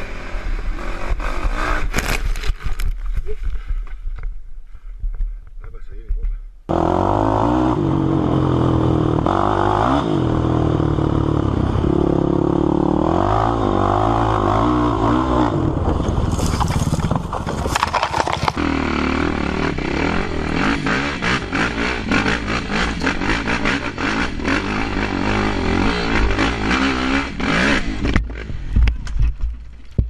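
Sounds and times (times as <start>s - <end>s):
quad engine revving: 0.0s - 2.2s, 6.7s - 28.8s
sharp clattering and rattling: 15.9s - 18.6s.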